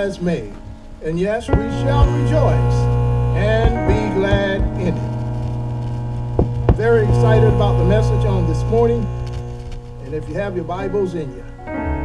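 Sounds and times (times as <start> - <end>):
electrical mains hum: 0.0 - 12.0
knocks: 1.6 - 2.9, 3.5 - 5.0, 6.3 - 7.8.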